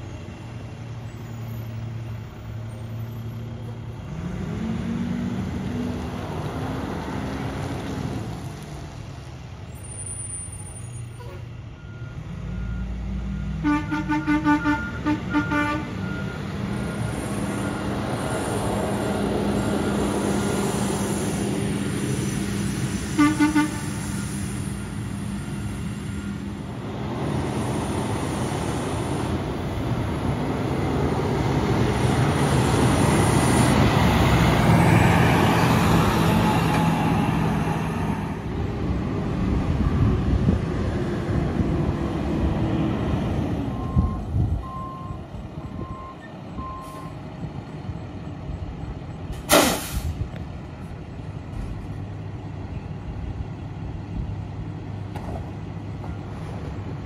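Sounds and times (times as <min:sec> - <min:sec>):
truck diesel engines running: 0:00.0 - 0:57.0
short horn toots: 0:23.2 - 0:24.0.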